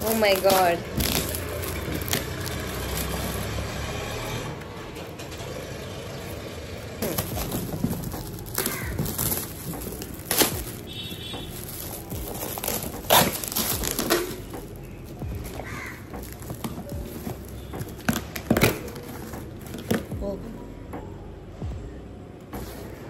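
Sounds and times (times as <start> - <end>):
plastic wrap crackling: 0.0 - 3.7, 7.0 - 20.1.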